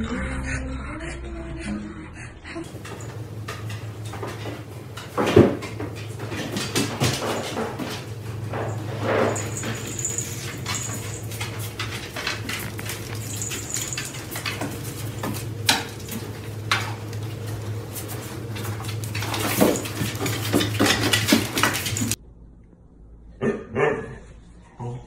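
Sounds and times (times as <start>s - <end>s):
low hum: 0.0s - 25.0s
dog claws tapping on wooden stairs: 2.7s - 22.2s.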